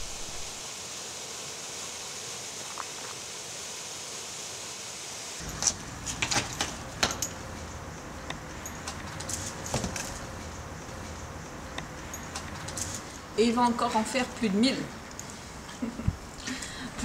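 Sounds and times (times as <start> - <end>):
stream rushing: 0.0 - 7.3.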